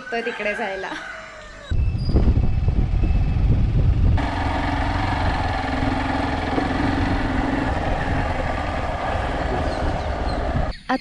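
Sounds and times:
wind rushing over microphone: 1.7 - 10.7
motorcycle engine running: 2.4 - 10.7.

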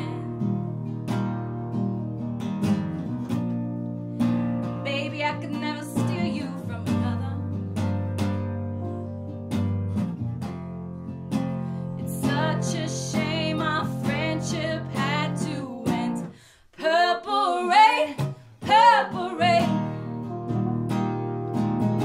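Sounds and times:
woman singing: 0.0 - 0.6, 4.8 - 7.6, 12.0 - 20.4
classical guitar strumming: 0.0 - 16.4, 18.2 - 22.0.

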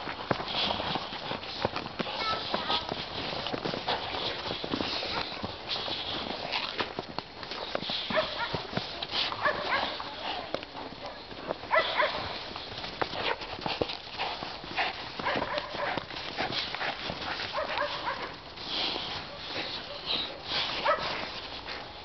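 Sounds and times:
dogs scuffling in snow: 0.0 - 22.0.

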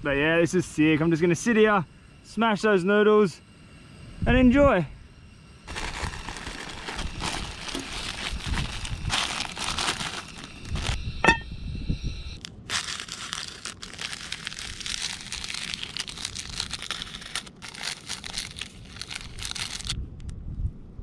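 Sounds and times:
plastic packet crinkling: 5.7 - 11.0, 12.4 - 20.0.

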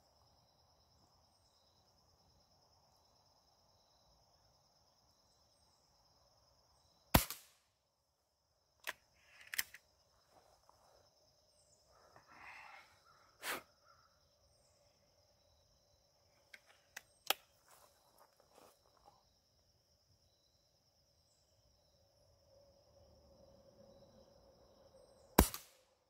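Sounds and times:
air rifle crack: 7.2 - 7.6, 25.4 - 25.8
rifle cocking clicks and rattles: 8.8 - 9.9
insect chirring: 8.8 - 25.4.

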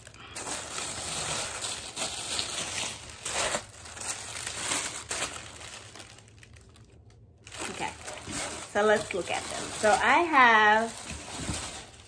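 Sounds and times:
tissue paper rustling: 0.0 - 12.0.

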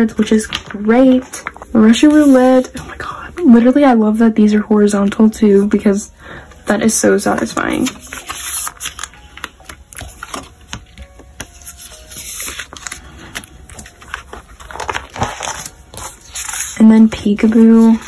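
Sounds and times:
plastic sleeves rustling: 0.0 - 3.0, 7.2 - 18.0
card tapping against plastic: 8.9 - 11.6.

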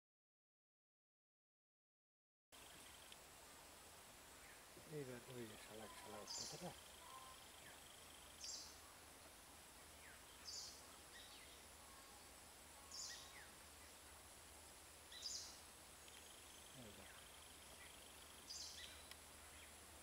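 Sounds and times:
faint high-pitched hiss: 2.6 - 20.0
short high bird calls: 5.7 - 8.9, 10.0 - 14.1, 15.1 - 19.7.

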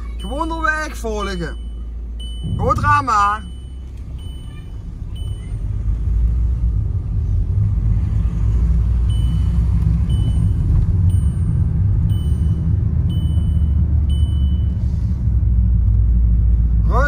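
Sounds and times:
car engine and tyres rumbling: 0.0 - 17.0
short high beeps: 0.2 - 5.7, 9.1 - 14.8.

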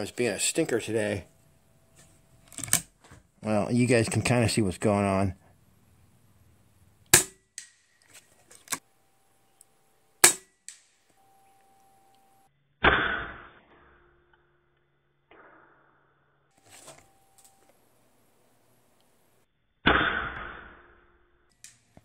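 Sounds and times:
muffled rifle report: 2.5 - 5.4.

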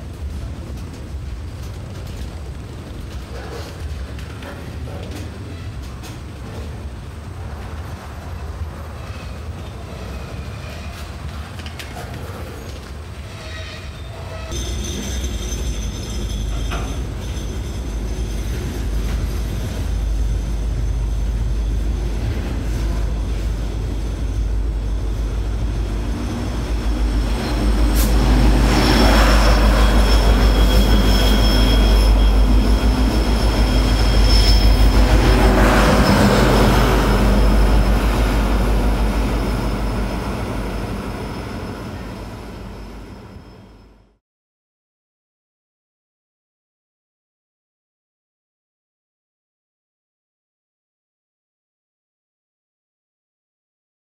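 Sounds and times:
diesel locomotive running: 0.0 - 44.2
train wheels squealing on rails: 3.2 - 6.8, 7.6 - 44.2.

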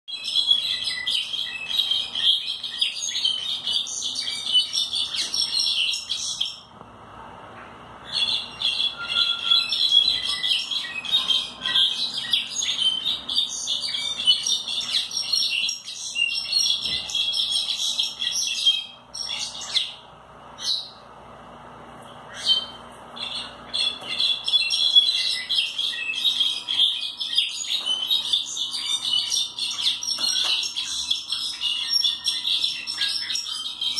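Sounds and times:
bird singing high squeaky notes: 8.1 - 20.0.

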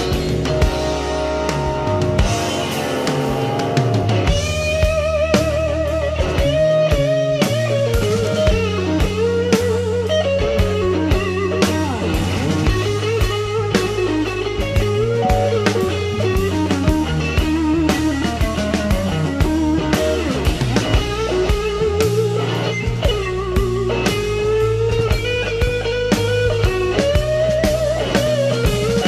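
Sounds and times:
drum beat: 0.0 - 22.3
bass: 0.0 - 29.0
guitar lead with bent notes: 0.0 - 29.0.

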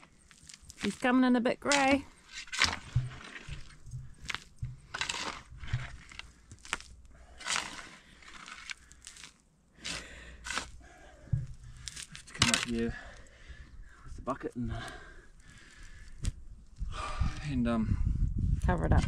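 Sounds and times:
spade scraping stony soil: 0.0 - 13.2.

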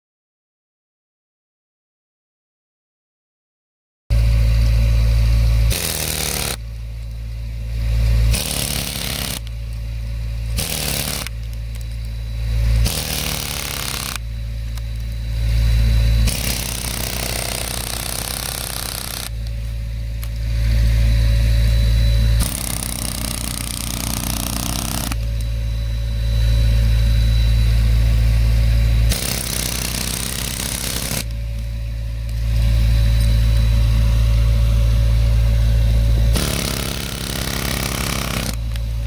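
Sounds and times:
low mechanical hum: 4.1 - 39.0
pneumatic chisel hammering: 5.4 - 7.1, 7.8 - 9.8, 10.4 - 19.6, 22.4 - 25.5, 29.0 - 31.4, 36.3 - 39.0.

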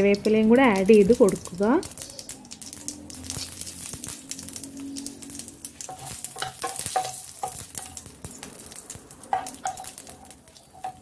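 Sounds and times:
seeds sizzling and popping in oil: 0.0 - 11.0
spatula scraping a pan: 9.3 - 11.0.

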